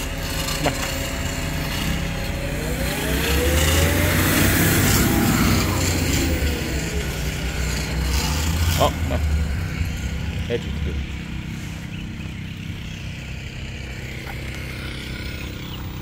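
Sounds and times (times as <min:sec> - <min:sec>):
vehicle engine passing by: 0:00.0 - 0:16.0.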